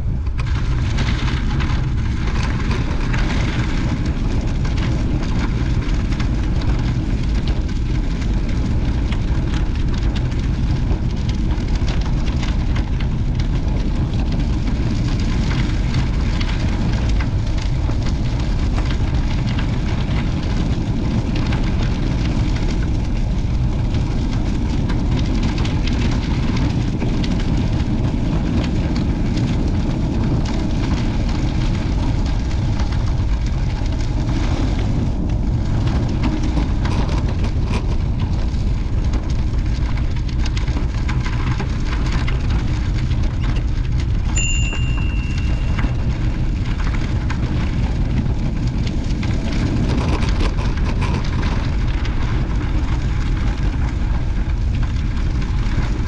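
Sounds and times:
wind buffeting microphone: 0:00.0 - 0:56.0
short high-pitched tone: 0:44.4 - 0:46.0.

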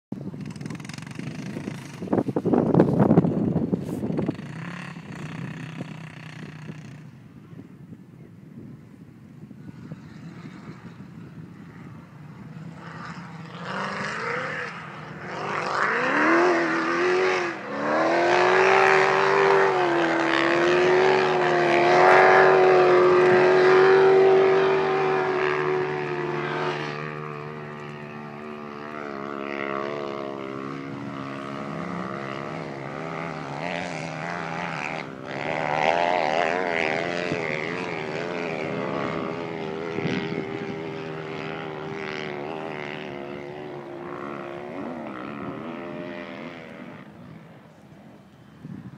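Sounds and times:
quad engine revving hard: 0:03.9 - 0:07.1, 0:12.6 - 0:47.2.

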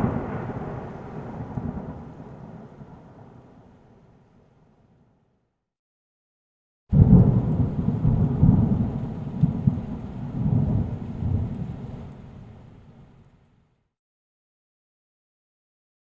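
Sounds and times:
thunder rumble: 0:00.0 - 0:03.7, 0:06.9 - 0:13.1.

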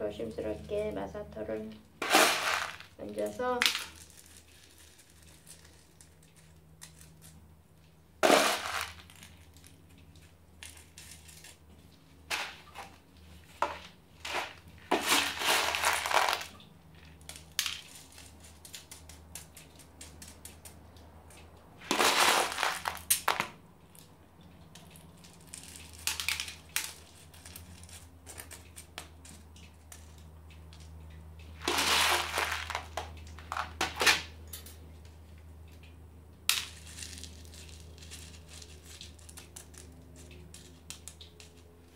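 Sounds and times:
grit pouring onto soil: 0:02.0 - 0:03.0, 0:08.2 - 0:09.6, 0:14.2 - 0:16.6, 0:21.8 - 0:23.1, 0:31.6 - 0:33.6.

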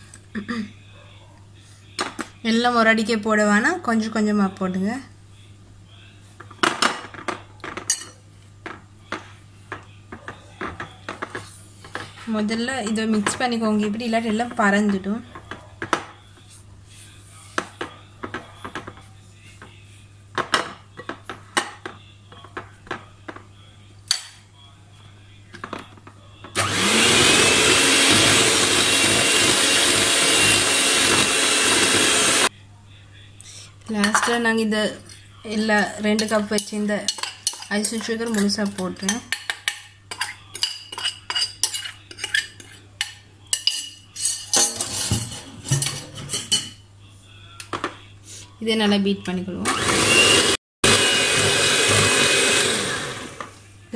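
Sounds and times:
electric hand mixer motor: 0:26.6 - 0:32.5, 0:49.7 - 0:53.5
metal spoon clinking on glass bowl: 0:36.2 - 0:46.8
spatula scraping beaters: 0:40.1 - 0:46.6.

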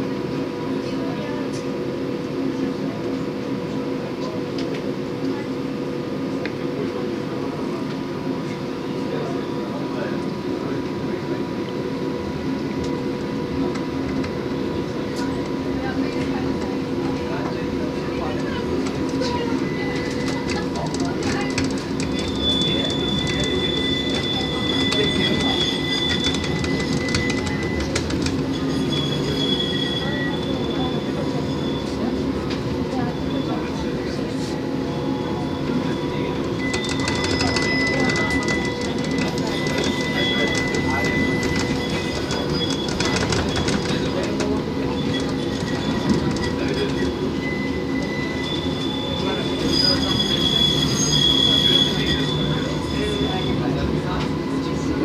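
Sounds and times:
tram electric hum and rumble: 0:00.0 - 0:55.0
wheels squealing on rails: 0:17.4 - 0:55.0.

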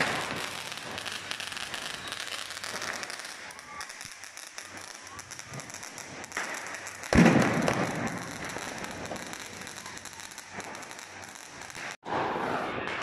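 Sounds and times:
firework fountain hissing and crackling: 0:00.0 - 0:12.6
loud firework bang: 0:07.1 - 0:08.4.

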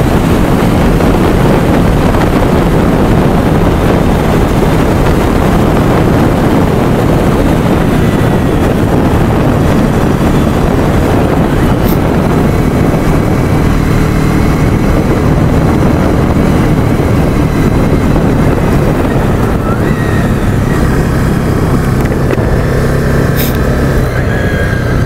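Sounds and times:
vehicle engine running: 0:00.0 - 0:25.0
wind rushing over microphone: 0:00.0 - 0:25.0.

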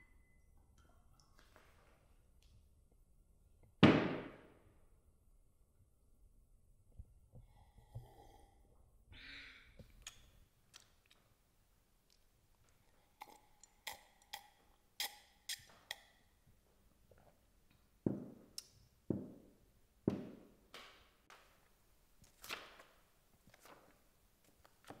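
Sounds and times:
woman breathing softly: 0:07.4 - 0:09.8.

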